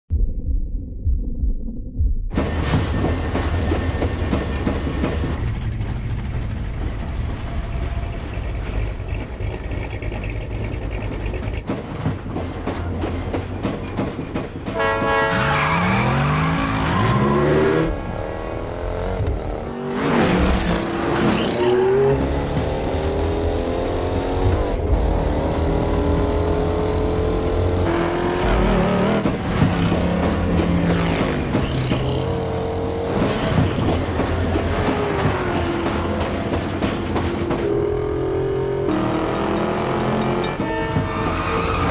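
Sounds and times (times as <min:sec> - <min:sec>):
film score: 0:00.1 - 0:41.9
racing car engines revving: 0:15.4 - 0:41.9.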